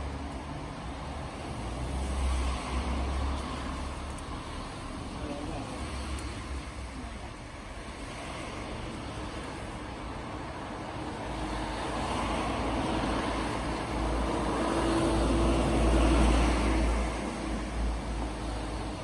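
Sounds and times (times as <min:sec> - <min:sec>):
vehicle passing by: 0:11.3 - 0:19.0.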